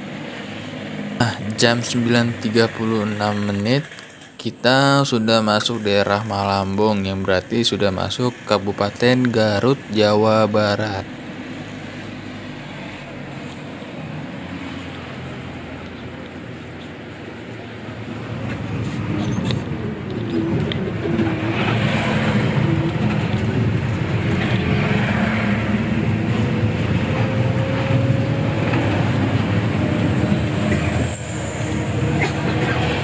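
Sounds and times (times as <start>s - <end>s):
bus diesel engine: 0.0s - 33.0s
road noise: 0.0s - 33.0s.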